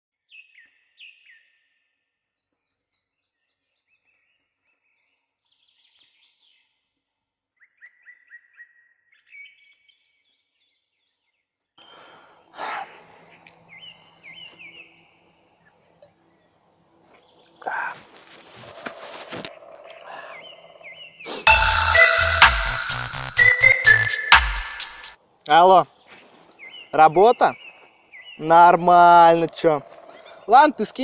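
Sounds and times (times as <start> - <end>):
birds chirping and trilling: 19.8 - 24.1.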